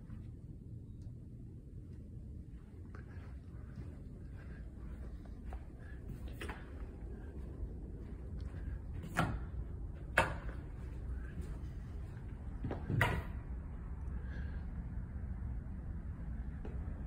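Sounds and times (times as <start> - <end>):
low room rumble: 0.0 - 17.0.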